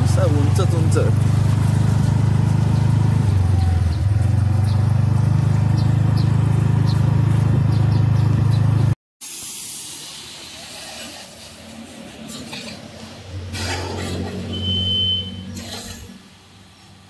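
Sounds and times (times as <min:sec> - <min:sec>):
scooter engine humming: 0:00.0 - 0:09.0, 0:12.5 - 0:17.0.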